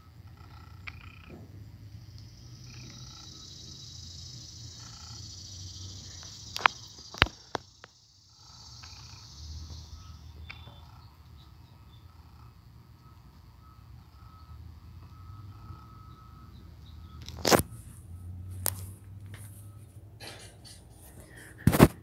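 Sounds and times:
high insect buzzing: 2.1s - 11.2s.

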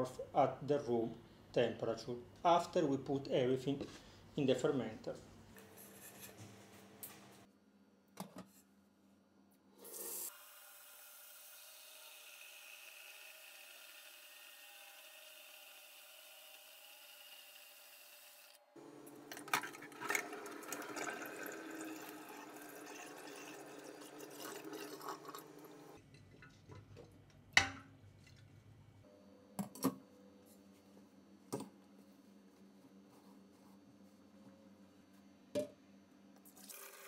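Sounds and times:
pot clattering: 19.2s - 27.0s.

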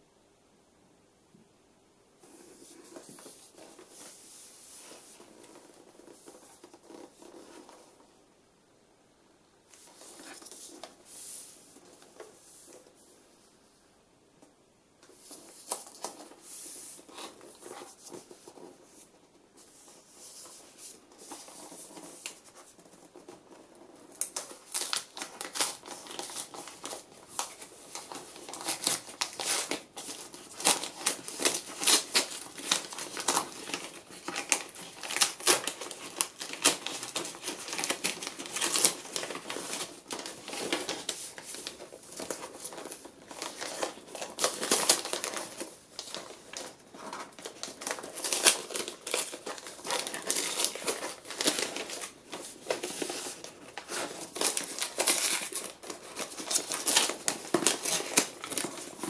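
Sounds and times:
gift wrapping paper crinkling: 19.8s - 59.0s.

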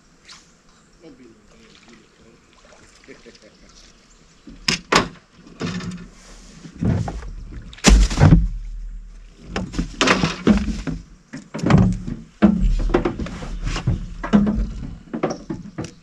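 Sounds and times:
knocks and thumps on boat hull: 6.8s - 16.0s.

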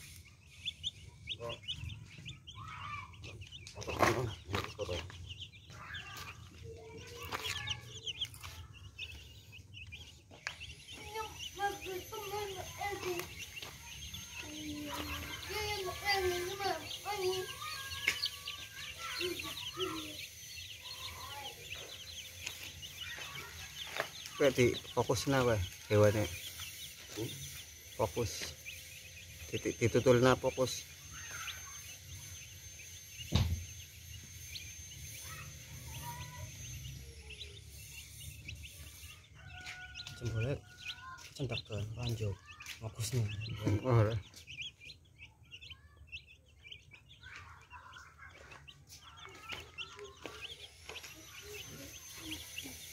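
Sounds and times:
chicks peeping: 0.0s - 52.9s
lower deeper bird calls: 0.0s - 52.9s
sharp thump: 33.3s - 33.6s.

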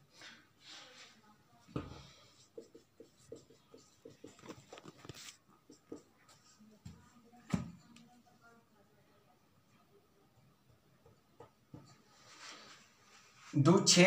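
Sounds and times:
marker writing on whiteboard: 1.8s - 7.6s, 11.0s - 12.4s.

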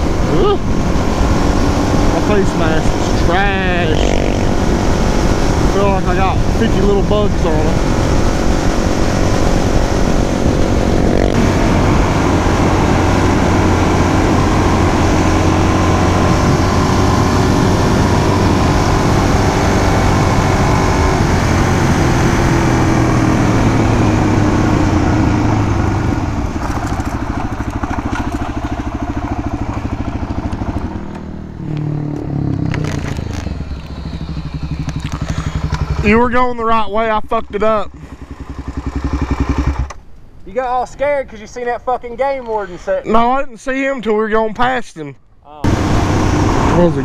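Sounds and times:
wind noise on microphone: 0.0s - 33.9s
motorcycle engine running: 0.0s - 40.1s, 45.6s - 47.0s.

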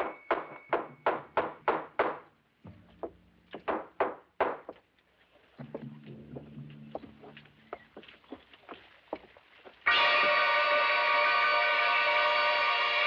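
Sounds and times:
sharp knocks on wooden frame: 0.3s - 4.8s.

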